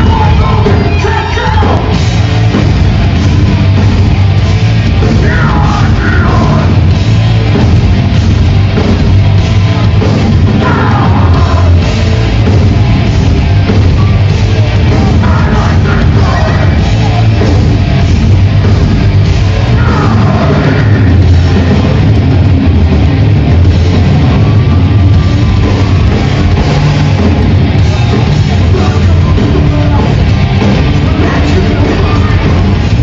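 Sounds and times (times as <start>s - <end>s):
shouted vocals: 0.0s - 2.0s, 5.1s - 6.8s, 10.5s - 11.9s, 14.6s - 17.5s, 19.6s - 21.2s
heavy metal band playing live: 0.0s - 33.0s.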